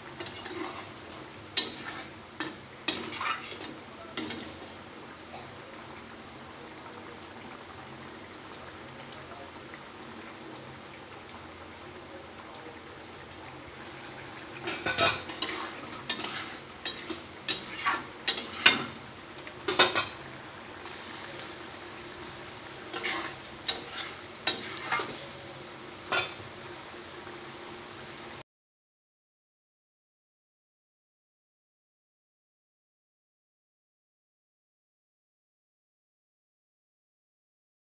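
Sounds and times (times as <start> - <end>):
curry sizzling in a pan: 0.0 - 28.4
utensil scraping metal pan: 0.2 - 4.8, 14.1 - 19.0, 22.3 - 25.4.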